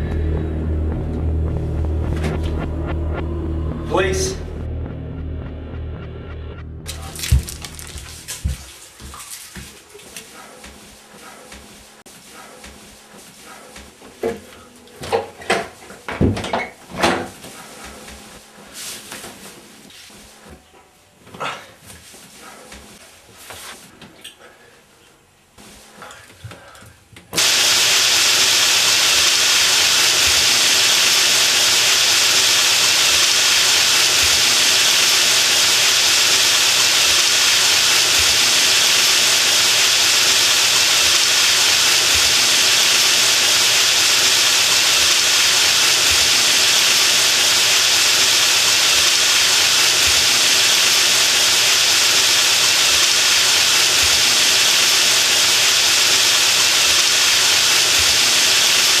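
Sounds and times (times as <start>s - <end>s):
shower water spraying: 6.9s - 10.4s, 27.4s - 59.0s.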